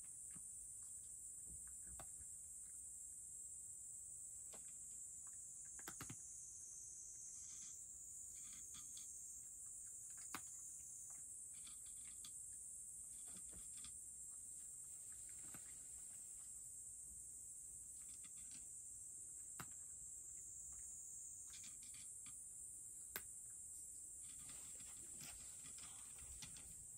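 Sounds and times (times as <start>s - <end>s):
high-pitched background hiss: 0.0s - 26.9s
cat chewing dry kibble: 5.5s - 6.3s, 8.5s - 12.5s.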